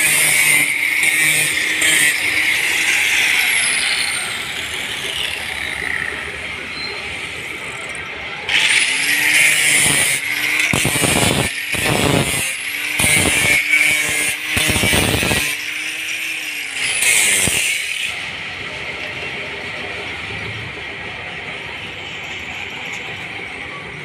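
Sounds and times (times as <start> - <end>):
angle grinder grinding metal: 0.0 - 6.4, 7.5 - 18.3.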